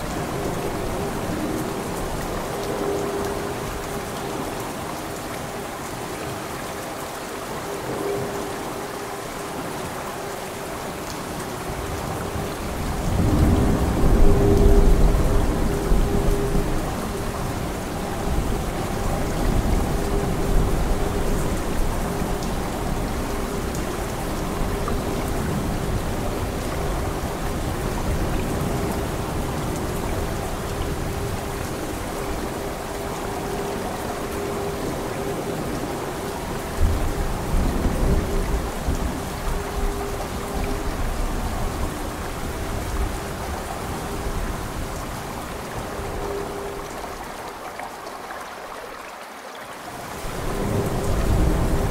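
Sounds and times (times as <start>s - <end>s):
steady rain: 0.0s - 51.9s
thunder rumble: 12.4s - 21.0s, 50.3s - 51.9s.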